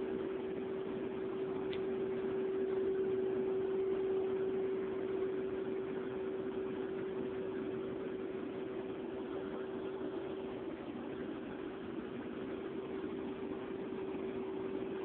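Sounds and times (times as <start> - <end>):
equipment humming with hiss: 0.0 - 15.0.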